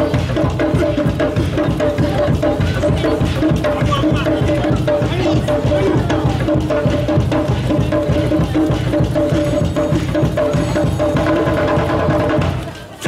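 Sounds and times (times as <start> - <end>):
fast dense drumming: 0.0 - 13.0.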